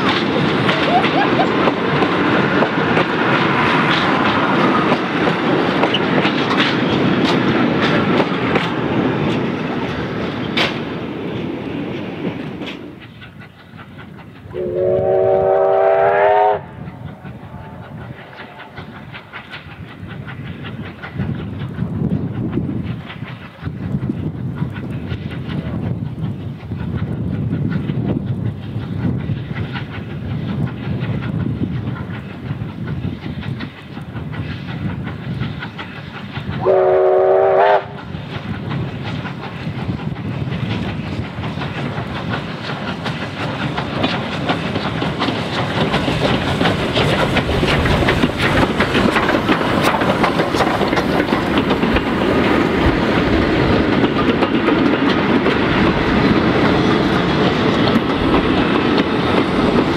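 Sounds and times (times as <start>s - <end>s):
carriage wheels clicking over rail joints: 0.0s - 14.6s, 37.9s - 59.9s
steam locomotive approaching: 0.0s - 59.9s
train whistle blast: 14.5s - 16.8s, 17.5s - 18.8s, 36.6s - 38.0s.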